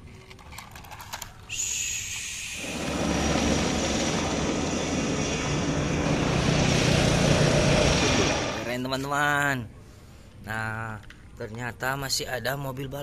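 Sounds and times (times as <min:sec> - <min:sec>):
aircraft engine: 0:01.5 - 0:08.7
high engine whine: 0:01.5 - 0:09.1.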